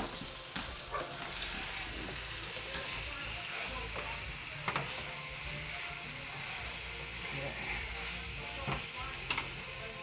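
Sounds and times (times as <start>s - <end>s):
food sizzling in a frying pan: 0.0s - 10.0s.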